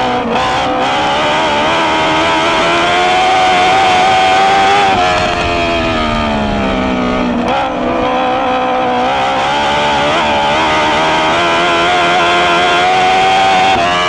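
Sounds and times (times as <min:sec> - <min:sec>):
dirt track noise: 0:00.0 - 0:14.0
racing car engine revving: 0:00.0 - 0:14.0
wind noise: 0:00.6 - 0:12.3.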